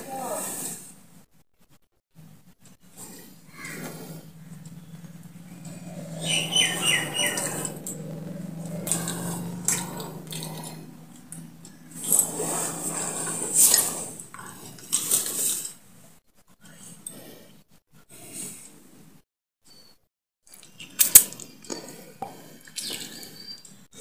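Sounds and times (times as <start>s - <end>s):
low hum: 2.2s - 14.5s
wet mouth and throat noises: 8.6s - 15.4s, 20.5s - 23.7s.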